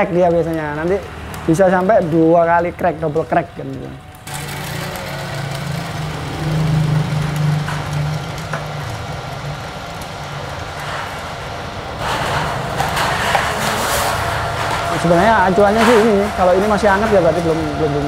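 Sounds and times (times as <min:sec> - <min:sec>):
coffee roaster motor hum: 0:04.1 - 0:18.0.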